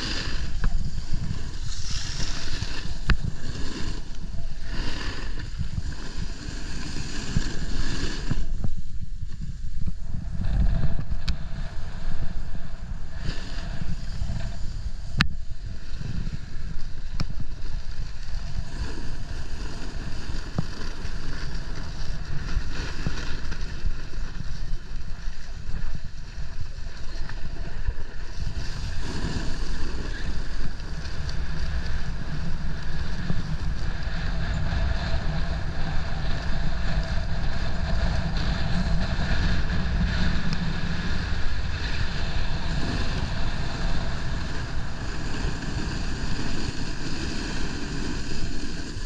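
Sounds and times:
wind buffeting microphone: 0.0s - 49.0s.

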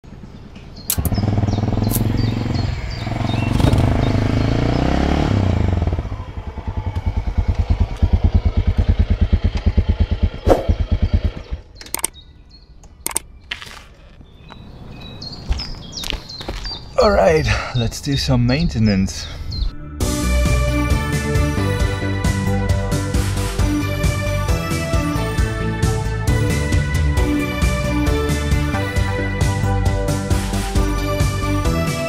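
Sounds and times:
motorcycle engine revving and idling: 0.8s - 12.1s
sharp clicks and knocks: 11.8s - 12.2s, 12.8s - 13.3s.

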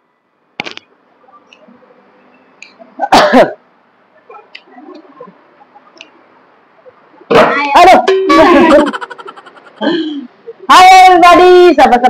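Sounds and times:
faint room noise: 0.0s - 12.0s.

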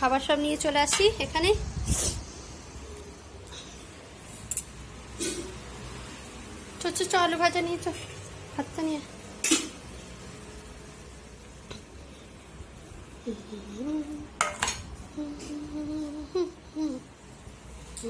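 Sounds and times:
faint wavering hum: 12.0s - 14.4s, 15.0s - 17.6s
dishes and pots clattering: 14.4s - 14.9s
utensils clacking on crockery: 14.4s - 14.9s.

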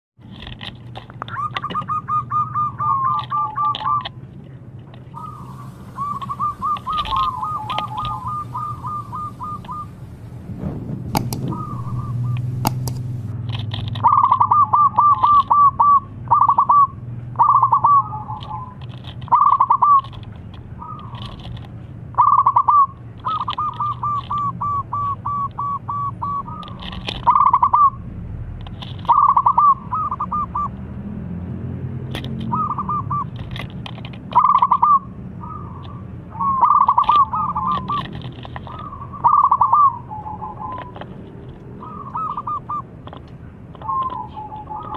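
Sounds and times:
low steady hum: 0.7s - 28.6s
dove cooing: 1.3s - 4.2s, 5.1s - 10.4s, 11.2s - 13.3s, 14.0s - 20.2s, 22.2s - 28.0s, 29.0s - 30.8s, 32.4s - 33.4s, 34.3s - 41.2s, 41.8s - 44.9s
high bird chirps: 1.3s - 4.2s, 5.1s - 10.4s, 11.2s - 13.3s, 14.0s - 20.2s, 22.1s - 28.0s, 29.1s - 30.8s, 32.5s - 33.3s, 34.3s - 41.0s, 41.7s - 43.0s, 43.7s - 44.9s
sharp clicks: 11.0s - 14.4s.

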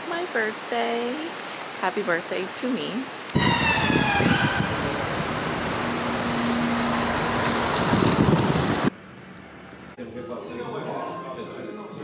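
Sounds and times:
passing traffic: 3.3s - 10.0s.

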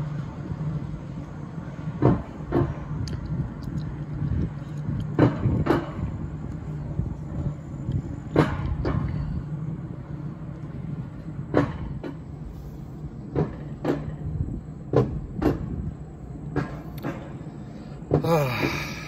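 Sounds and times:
coaster lift low rumble: 0.0s - 19.0s
lift track clacks: 0.0s - 19.0s.

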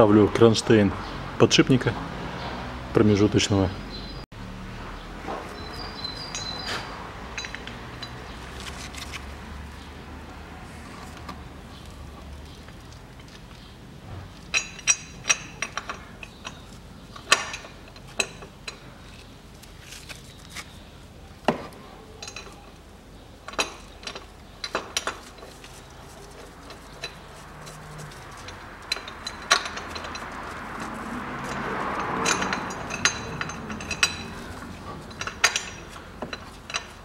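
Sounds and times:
metallic clinks and knocks: 5.4s - 9.1s, 14.4s - 18.9s, 21.5s - 22.8s, 23.4s - 37.0s.

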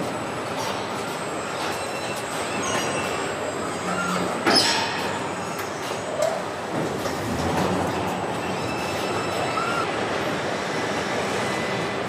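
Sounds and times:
machine squeals and clicks: 0.5s - 9.9s.

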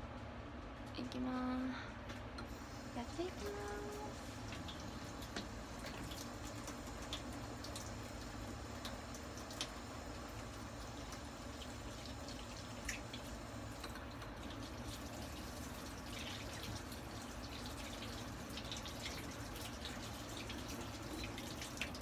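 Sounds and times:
kitchen tap running and dripping: 2.4s - 22.0s.

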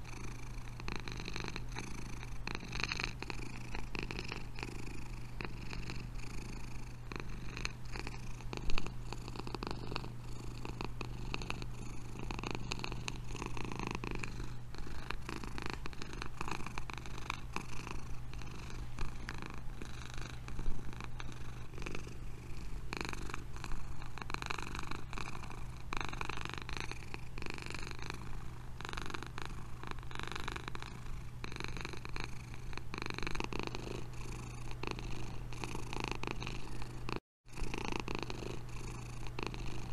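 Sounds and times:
cat purring: 0.0s - 39.9s.

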